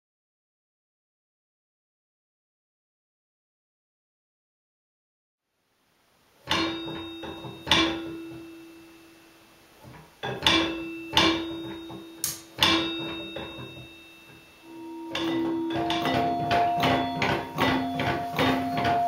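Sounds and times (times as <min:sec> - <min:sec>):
metal object ringing when struck: 0:06.5 - 0:09.2, 0:10.2 - 0:19.0.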